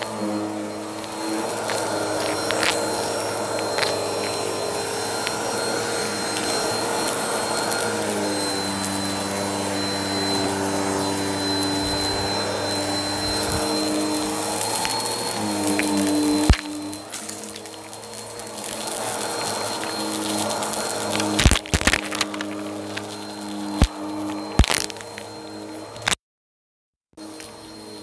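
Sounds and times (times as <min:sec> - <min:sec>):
vacuum cleaner running: 0:00.0 - 0:26.2, 0:27.2 - 0:28.0.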